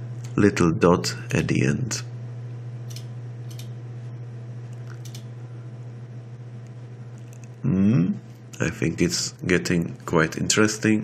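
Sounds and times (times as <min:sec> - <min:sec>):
low electrical hum: 0:00.0 - 0:11.0
computer mouse clicks: 0:02.9 - 0:03.7, 0:04.8 - 0:05.3.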